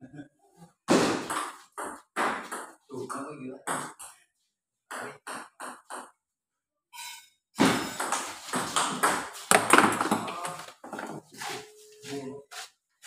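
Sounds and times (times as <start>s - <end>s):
table tennis ball ping: 4.9s - 6.2s, 7.6s - 10.4s.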